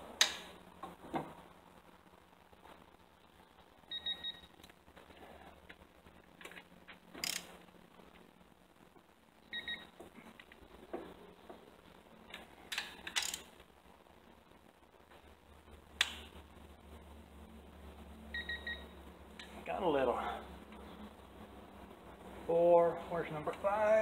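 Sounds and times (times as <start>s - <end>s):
ratchet clicks: 7.2s - 7.5s, 12.7s - 13.5s
two-tone electronic beeps: 18.4s - 18.9s.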